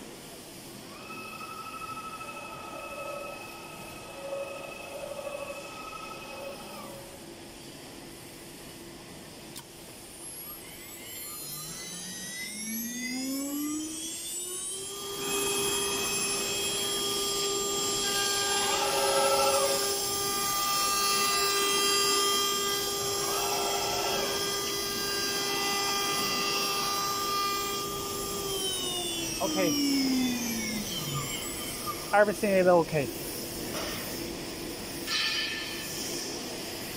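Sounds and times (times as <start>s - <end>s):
router spindle whine: 0.7s - 7.4s, 10.1s - 32.8s.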